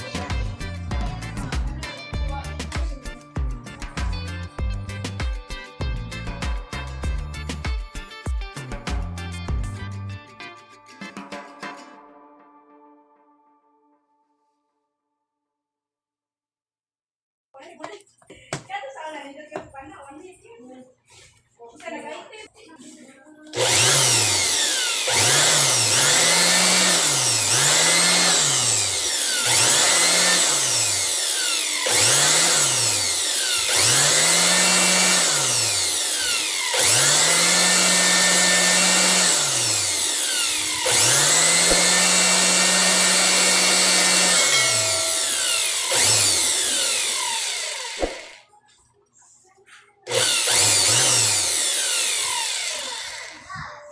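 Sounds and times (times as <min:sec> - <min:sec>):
air blower motor whine: 0:23.6 - 0:48.4, 0:50.1 - 0:53.5.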